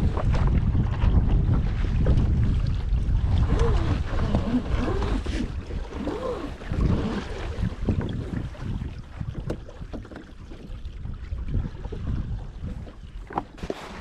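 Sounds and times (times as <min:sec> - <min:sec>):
water splashing around boat: 0:00.0 - 0:14.0
wind buffeting microphone: 0:00.0 - 0:14.0.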